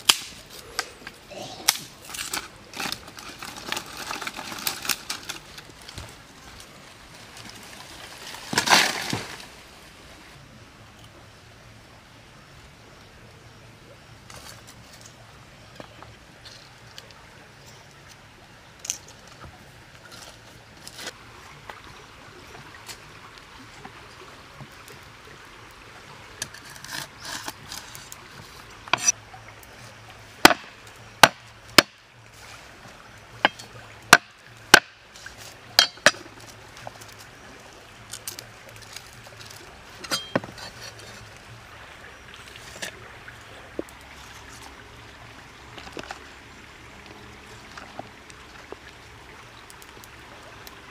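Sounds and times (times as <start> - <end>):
cleaver chopping on wooden board: 30.4 - 32.0.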